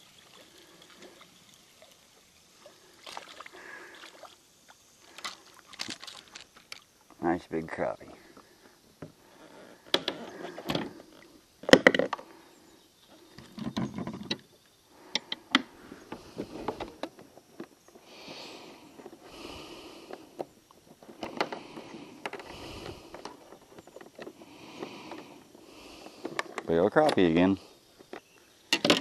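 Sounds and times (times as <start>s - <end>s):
fish handling clicks and knocks: 9.8s - 11.0s, 13.3s - 14.4s, 15.1s - 18.0s, 20.0s - 25.4s, 26.0s - 29.0s.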